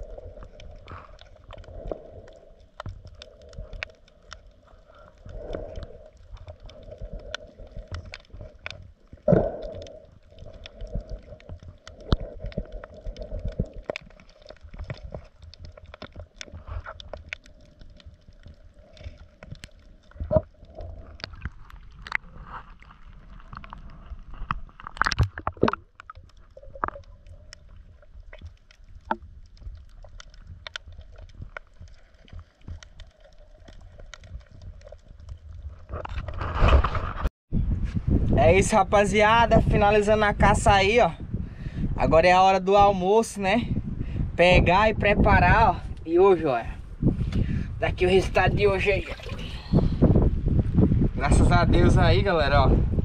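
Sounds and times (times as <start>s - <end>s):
water sloshing and gurgling: 0.0s - 38.3s, 39.5s - 53.0s.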